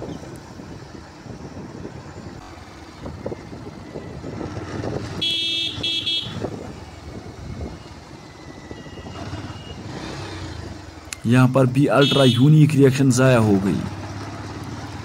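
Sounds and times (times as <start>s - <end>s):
motorcycle engine and road noise: 0.0s - 15.0s
vehicle horn honking: 5.2s - 6.5s, 11.9s - 12.6s.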